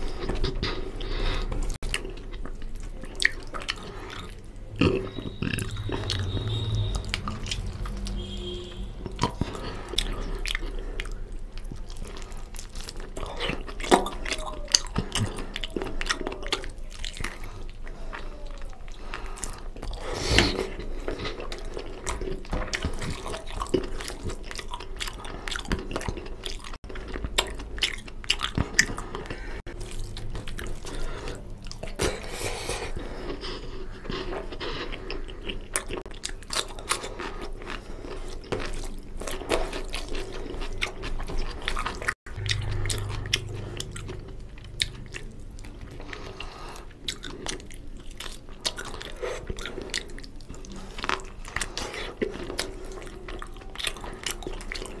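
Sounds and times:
close chewing and mouth smacks: 0.0s - 55.0s.

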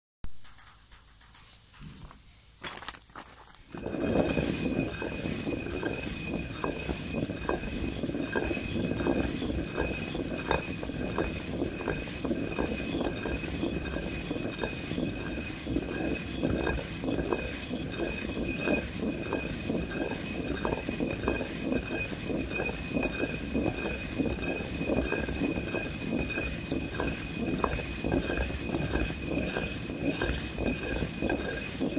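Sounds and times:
hand mill grinding grain: 2.9s - 31.9s.

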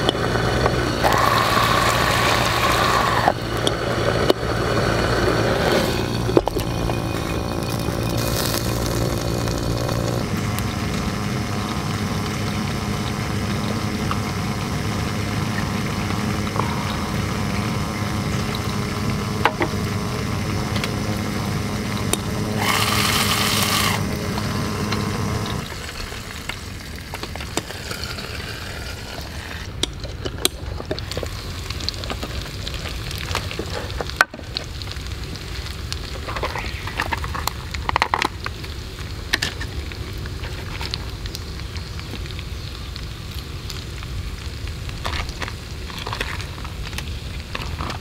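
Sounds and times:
fat spitting and popping: 0.0s - 14.3s, 15.4s - 17.7s
meat sizzling in a skillet: 0.0s - 48.0s.

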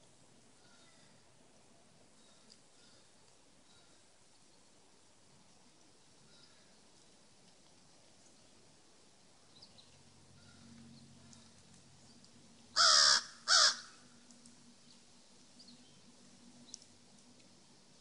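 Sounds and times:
crow cawing harshly: 12.8s - 14.0s.

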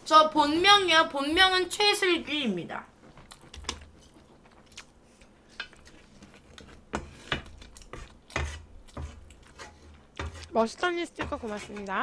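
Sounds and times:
chewing clicks: 3.2s - 4.9s
utensil tapping a dish: 11.1s - 12.0s.

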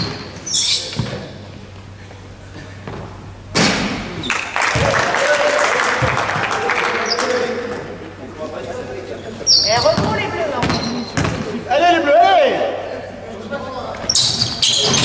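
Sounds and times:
sneaker squeaks on court: 0.0s - 1.4s, 9.5s - 11.5s, 14.1s - 15.0s
mixed noise and voices: 0.4s - 15.0s
basketball thudding: 9.7s - 11.5s.

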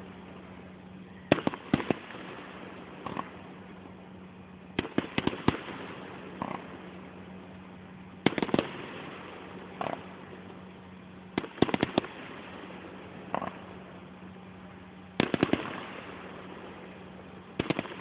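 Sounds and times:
fireworks bangs: 1.3s - 3.4s, 4.8s - 6.9s, 8.2s - 10.2s, 11.4s - 13.8s, 15.2s - 16.9s, 17.6s - 18.0s
quieter firework pops: 1.3s - 3.4s, 4.8s - 6.8s, 8.2s - 10.2s, 11.3s - 12.4s, 15.2s - 16.2s, 17.6s - 18.0s.

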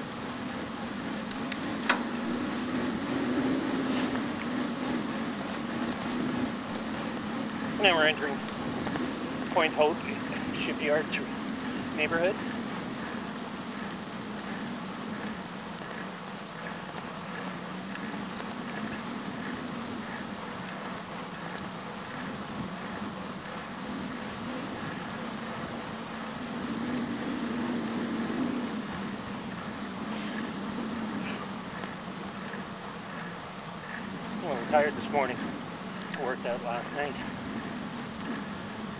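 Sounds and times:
bicycle rolling on pavement: 0.0s - 38.9s.

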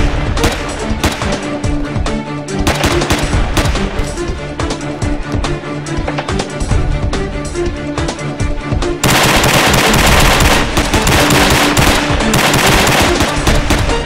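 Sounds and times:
rapid pistol gunfire: 0.4s - 1.4s, 2.7s - 3.9s, 9.0s - 14.0s.

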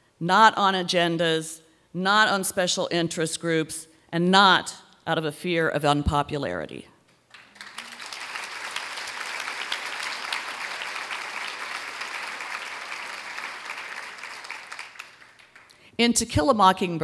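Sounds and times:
audience applauding: 7.3s - 15.8s.

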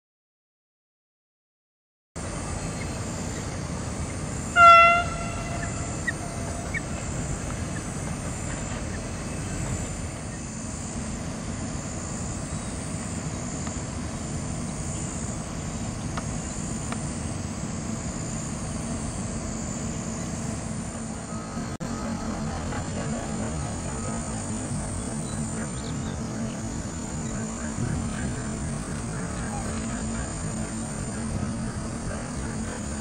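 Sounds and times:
outdoor background noise: 2.2s - 33.0s.

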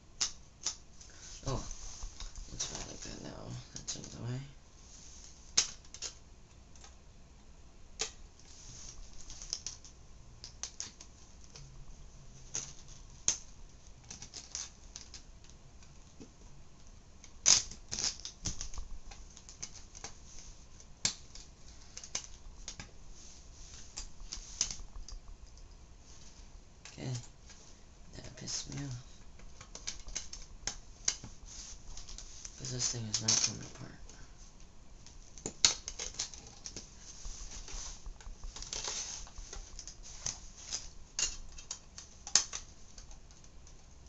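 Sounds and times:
small plastic parts clicking: 12.5s - 16.0s, 28.7s - 31.3s, 37.5s - 43.9s.

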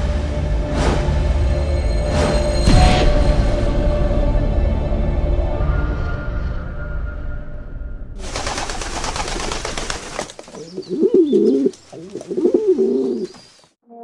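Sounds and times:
pigeon cooing: 10.6s - 13.4s.

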